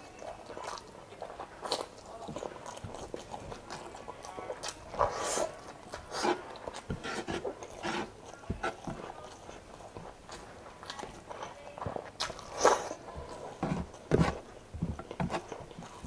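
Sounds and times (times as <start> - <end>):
fingers squishing saucy rice: 0.0 - 16.0
wet chewing and lip smacking: 0.0 - 16.0.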